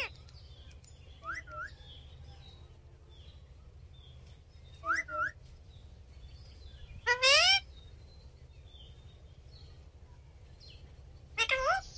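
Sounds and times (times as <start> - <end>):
parakeets calling: 0.0 - 1.8, 4.7 - 5.4, 6.5 - 8.0, 11.3 - 11.9.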